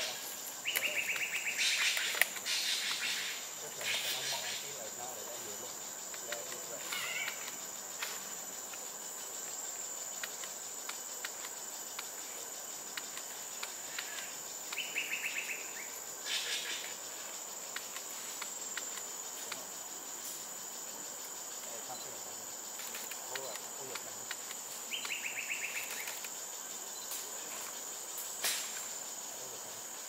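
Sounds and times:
insects droning: 0.0s - 30.0s
faint clicks: 0.7s - 3.1s, 7.2s - 8.8s, 9.4s - 12.1s, 12.9s - 14.9s, 17.7s - 19.7s, 22.8s - 26.4s.

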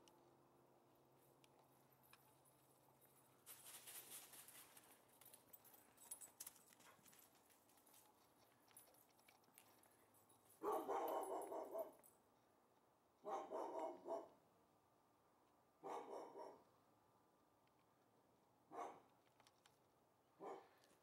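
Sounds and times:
dog barking: 10.6s - 12.0s, 13.2s - 14.4s, 15.8s - 16.7s, 18.7s - 19.1s, 20.4s - 20.8s.

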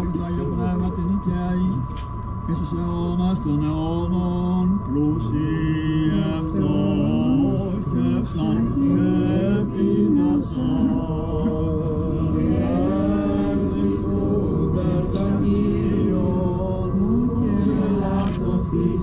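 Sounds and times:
man chanting unaccompanied: 0.0s - 1.9s, 2.5s - 19.0s.

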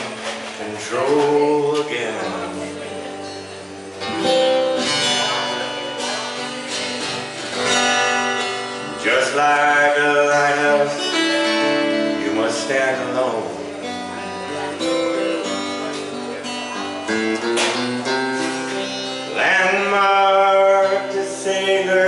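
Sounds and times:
man singing: 0.0s - 3.2s, 8.8s - 14.8s, 18.8s - 22.0s
acoustic guitar strumming: 0.0s - 22.0s.

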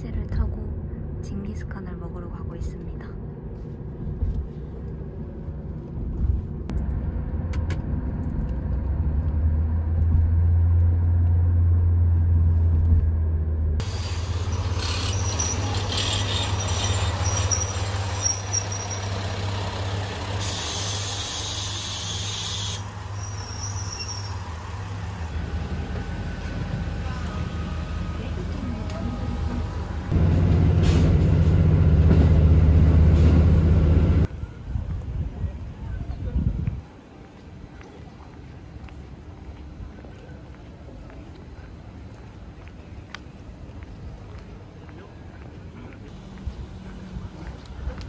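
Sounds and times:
diesel railcar running: 0.0s - 48.0s
compressed air hiss: 20.4s - 22.9s.

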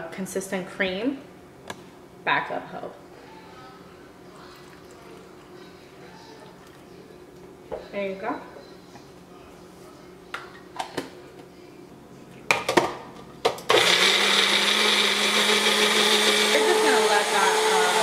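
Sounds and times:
blender motor running: 13.7s - 18.0s.

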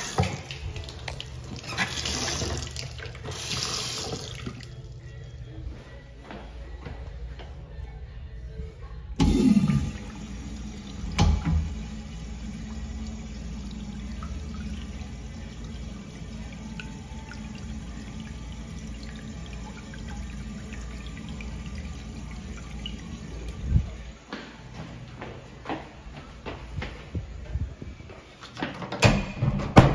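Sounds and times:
urinal flushing: 0.0s - 5.0s, 9.2s - 24.2s.

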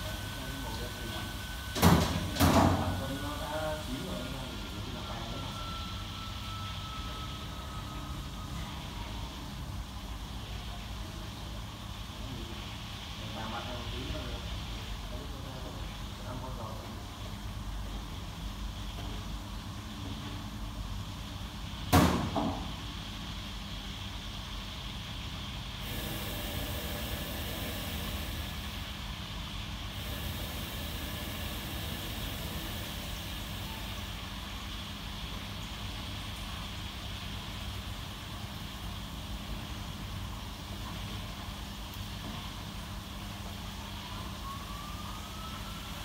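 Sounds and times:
machinery rumble with hiss: 0.0s - 46.0s
kitchen hiss: 22.5s - 41.4s.

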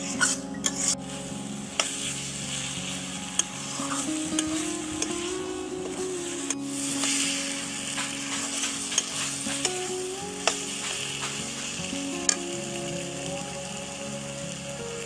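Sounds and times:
vegetables sizzling in a pan: 0.1s - 15.0s
metal spatula scraping a pan: 6.9s - 9.8s.

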